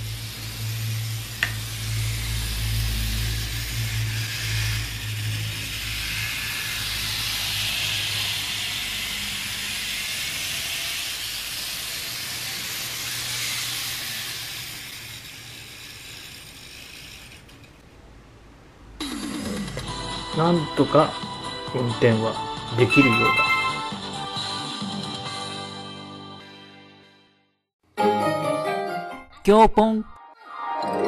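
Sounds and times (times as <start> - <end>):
model train motor whirring: 0.0 - 17.9.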